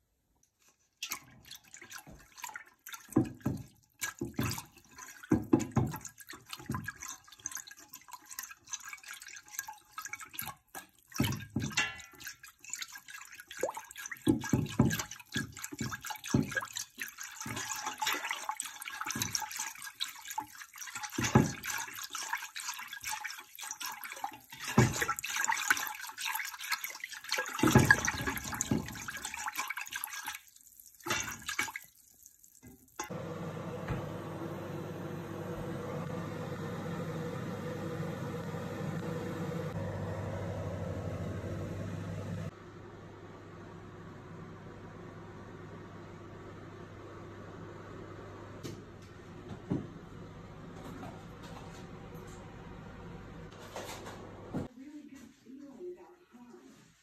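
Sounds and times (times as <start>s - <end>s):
water sloshing in pot: 0.4s - 33.2s
whisk knocking against pot: 3.1s - 7.2s, 14.1s - 18.3s, 20.4s - 22.2s, 23.0s - 26.0s.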